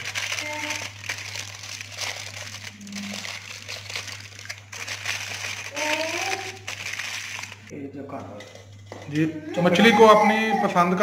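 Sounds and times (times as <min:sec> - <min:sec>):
aluminium foil crinkling: 0:00.0 - 0:07.7.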